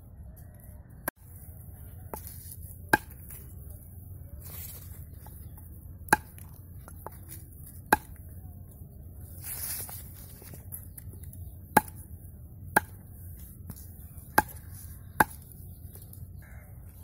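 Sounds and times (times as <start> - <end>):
blade chopping on wooden log: 2.9 - 3.2, 6.1 - 7.2, 7.9 - 8.2, 11.7 - 12.0, 12.7 - 13.0, 14.3 - 15.5.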